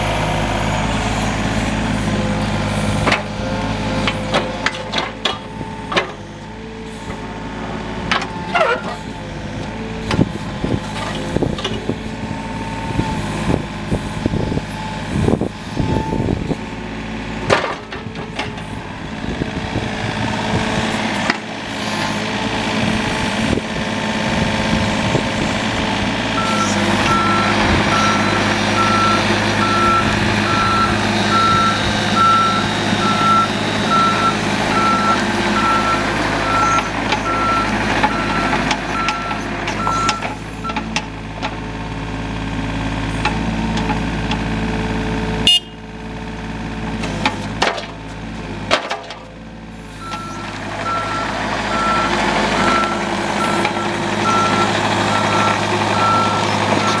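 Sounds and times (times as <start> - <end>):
clanks and squeaks of excavator: 0.0 - 45.9, 46.7 - 57.0
diesel engine running under load: 0.0 - 57.0
reversing alarm beeping: 26.4 - 40.8, 50.0 - 57.0.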